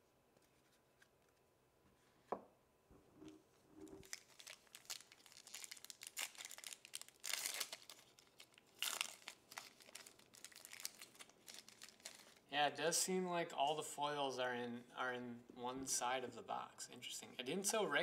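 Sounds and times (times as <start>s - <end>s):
foil wrapper crinkling: 4.0s - 12.4s
foil wrapper ripping: 4.0s - 12.4s.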